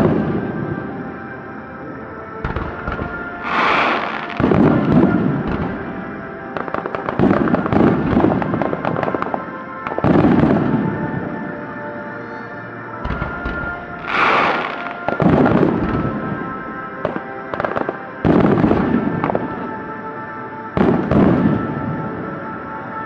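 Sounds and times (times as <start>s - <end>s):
firework booms: 2.4s - 9.4s, 10.0s - 11.0s, 13.0s - 16.4s, 17.0s - 19.6s, 20.8s - 22.0s
firework crackling: 2.4s - 11.0s, 13.0s - 16.4s.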